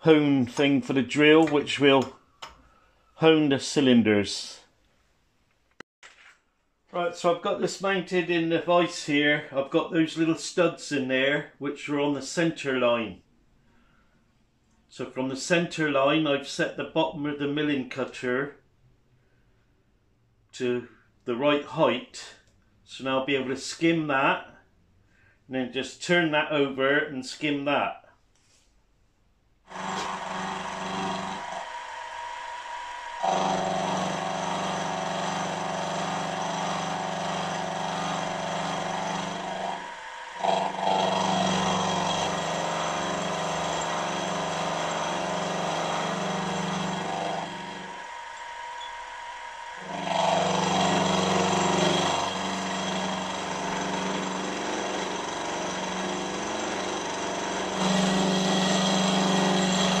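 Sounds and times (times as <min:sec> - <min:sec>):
metal cutting noise: 0:29.7 - 1:00.0
milling machine motor hum: 0:29.7 - 1:00.0.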